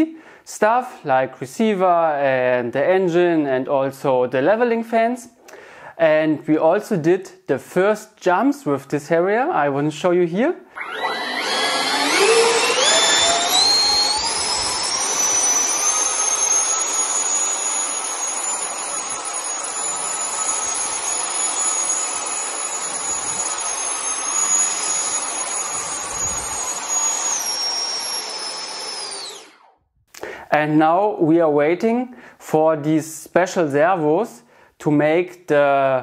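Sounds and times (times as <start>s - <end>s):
electric ducted fans whining: 10.8s - 29.7s.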